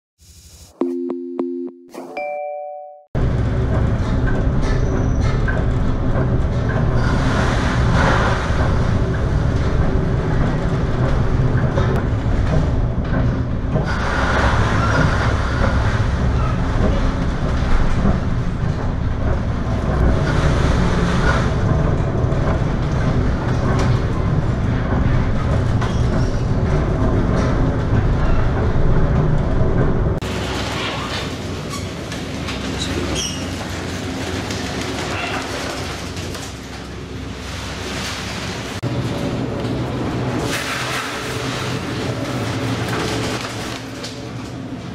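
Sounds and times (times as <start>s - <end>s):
wind and waves rumbling: 3.2s - 44.9s.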